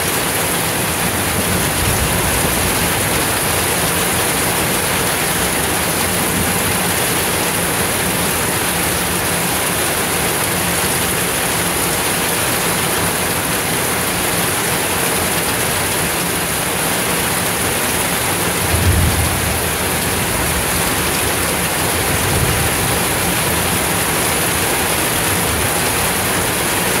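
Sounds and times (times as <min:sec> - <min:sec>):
heavy rain on pavement: 0:00.0 - 0:27.0
thunder rumbling: 0:01.2 - 0:08.1, 0:18.6 - 0:24.3.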